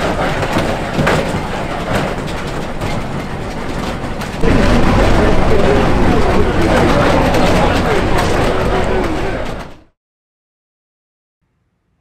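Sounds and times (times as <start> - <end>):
shaking booth rumbling: 0.0 - 9.9
loud voices: 4.4 - 9.9.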